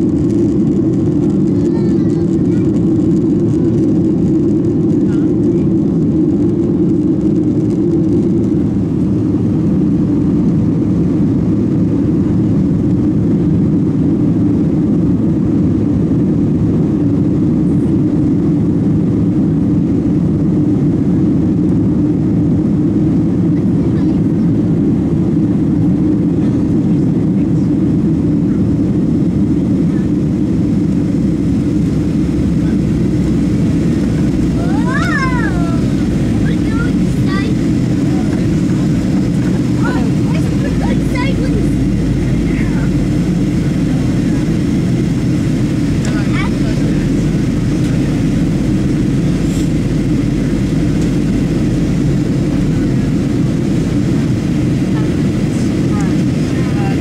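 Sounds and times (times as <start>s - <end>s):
airplane cabin engine rumble: 0.0s - 57.0s
rushing air: 27.8s - 57.0s.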